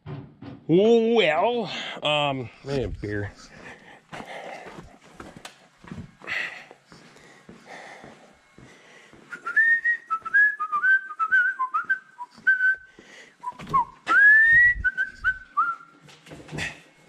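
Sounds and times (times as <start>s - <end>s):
person whistling a tune: 9.3s - 15.9s.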